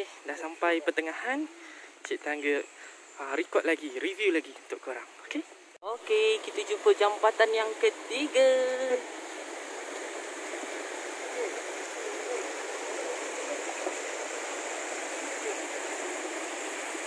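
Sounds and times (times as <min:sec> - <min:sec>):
river water rushing: 0:06.1 - 0:17.0.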